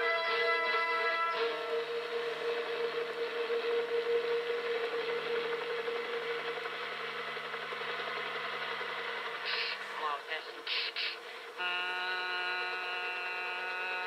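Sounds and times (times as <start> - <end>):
helicopter turbine and rotor noise: 1.6 - 11.6.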